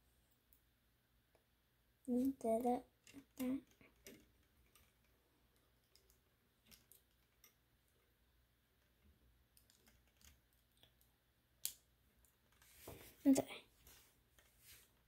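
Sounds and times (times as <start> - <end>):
plastic pieces clicking: 3.0 - 7.6, 9.5 - 12.6.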